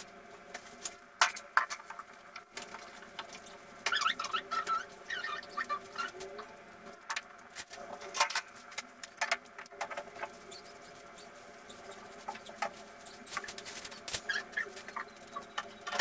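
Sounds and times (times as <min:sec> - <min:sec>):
faint steady hum: 0:00.0 - 0:16.0
cages and carriers being moved: 0:07.5 - 0:16.0.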